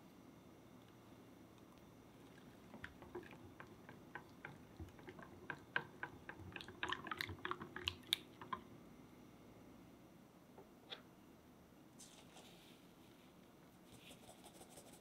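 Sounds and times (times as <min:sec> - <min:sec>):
whisk clicking against glass bowl: 0:02.7 - 0:08.6.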